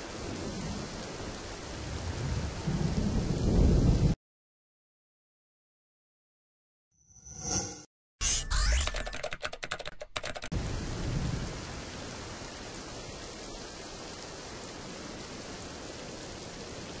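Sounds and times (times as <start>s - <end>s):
heavy rain: 0.0s - 4.2s, 10.5s - 17.0s
low rumble of thunder: 0.0s - 4.2s, 10.6s - 13.6s
fast typing clicks: 8.5s - 10.5s.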